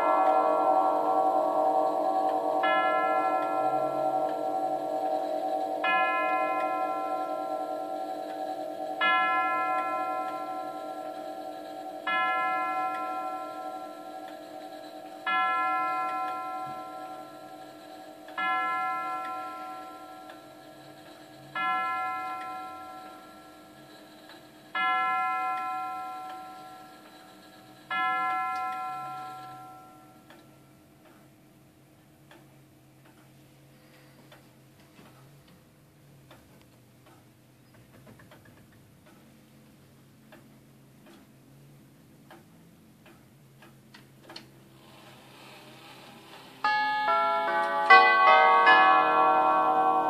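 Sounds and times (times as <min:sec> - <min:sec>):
tubular clock bell striking: 0:00.0 - 0:30.4, 0:46.6 - 0:50.0
clock ticking: 0:00.0 - 0:33.5, 0:38.2 - 0:44.6.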